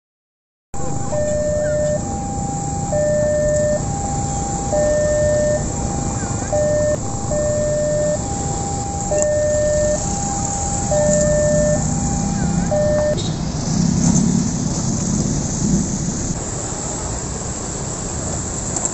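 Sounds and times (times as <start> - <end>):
two-tone crossing alarm: 0.8 - 13.3
motorcycle and car traffic: 0.8 - 18.9.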